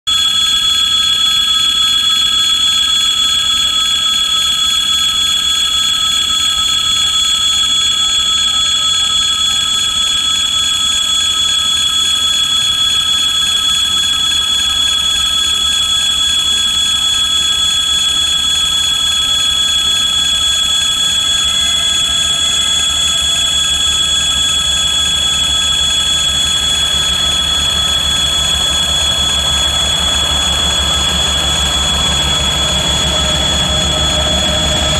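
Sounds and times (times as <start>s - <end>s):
diesel locomotive rumble: 26.6s - 34.9s.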